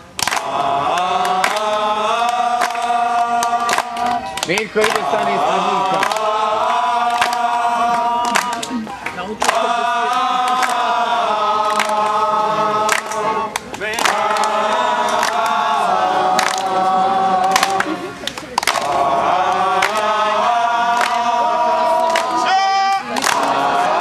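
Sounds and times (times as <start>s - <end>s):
hand claps: 0.0s - 10.9s, 11.6s - 12.2s, 12.8s - 15.6s, 16.3s - 16.8s, 17.4s - 19.0s, 19.8s - 20.2s, 20.9s - 21.3s, 22.0s - 23.7s
women singing together: 0.2s - 24.0s.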